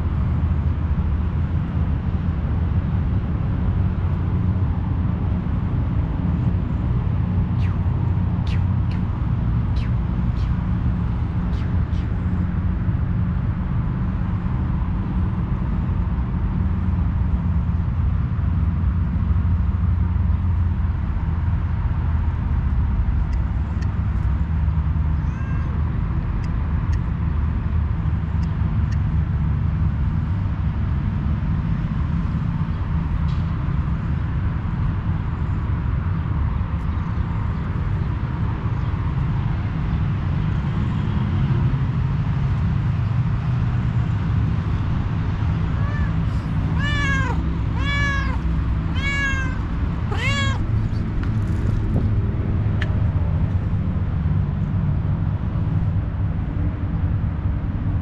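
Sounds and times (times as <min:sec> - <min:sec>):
distant traffic rumble: 0:00.0 - 0:58.0
faint cat meow: 0:25.1 - 0:26.0, 0:45.7 - 0:51.5.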